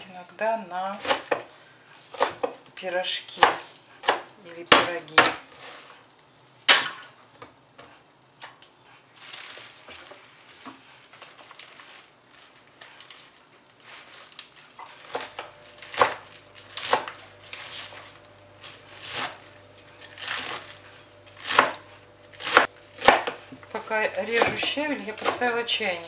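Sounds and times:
knife chopping on cutting board: 2.1s - 2.6s, 3.4s - 5.4s, 21.4s - 23.6s, 24.3s - 25.5s
leaves rustling: 9.1s - 19.3s.

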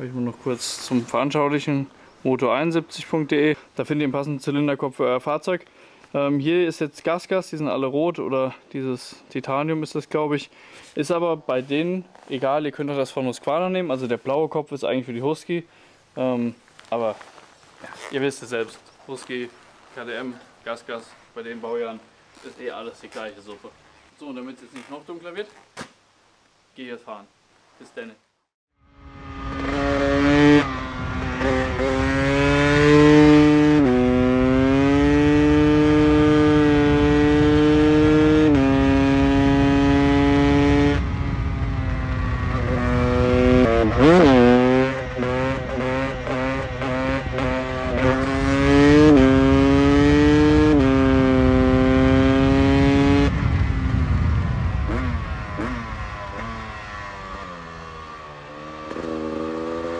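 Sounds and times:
two-stroke motorcycle engine accelerating: 28.9s - 59.9s.

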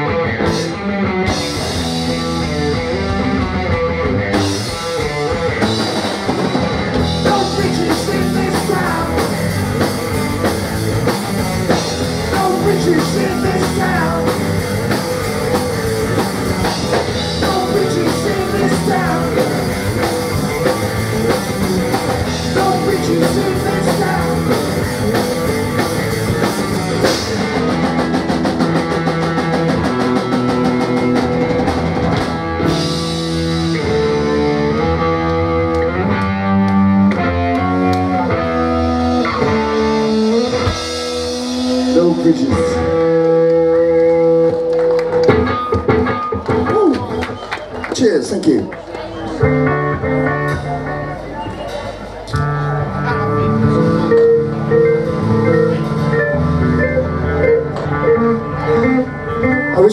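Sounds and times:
drum kit: 0.0s - 47.5s, 49.4s - 59.9s
distorted electric guitars: 0.0s - 47.8s, 49.2s - 59.9s
bass guitar: 0.0s - 48.1s, 48.8s - 59.9s.

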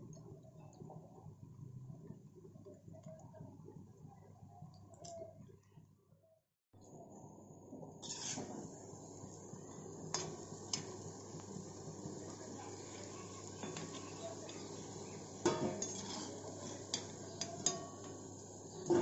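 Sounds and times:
food deep-frying in oil: 7.7s - 19.0s
metal skimmer scraping pan: 8.0s - 8.6s, 15.4s - 18.2s.

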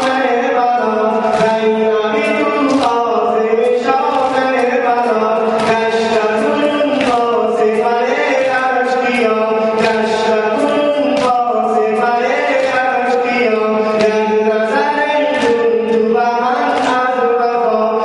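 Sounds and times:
man chanting a lament: 0.0s - 18.0s
chest-beating slaps: 4.0s - 11.4s.

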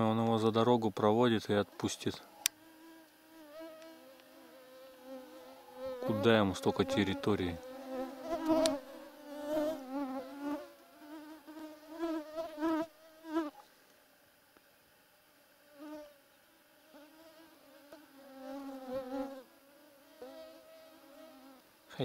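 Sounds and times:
mosquitoes whining: 2.1s - 13.6s.

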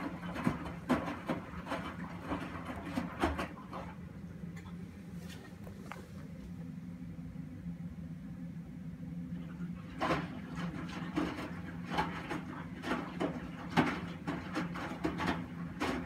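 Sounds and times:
washing machine motor hum: 0.0s - 16.0s.

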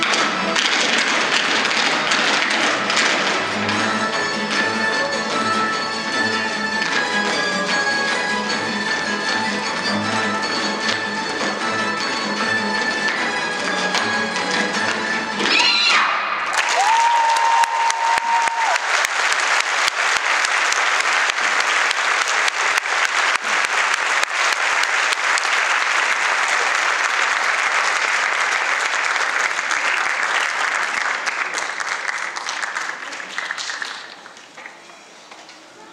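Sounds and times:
audience applauding: 16.4s - 34.8s.

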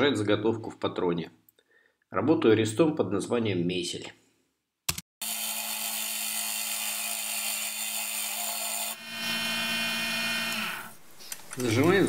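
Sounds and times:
lathe motor hum: 8.8s - 10.9s.

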